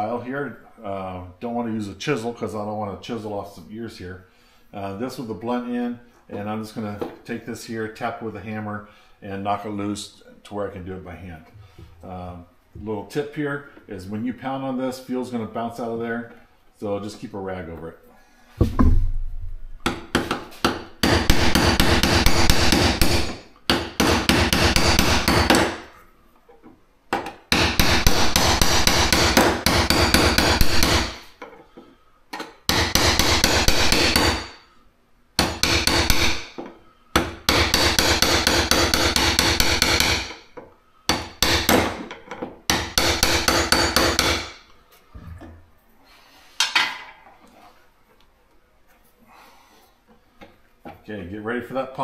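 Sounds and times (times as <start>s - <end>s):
hammer tapping file on nut: 35.4s - 42.1s, 42.7s - 44.5s.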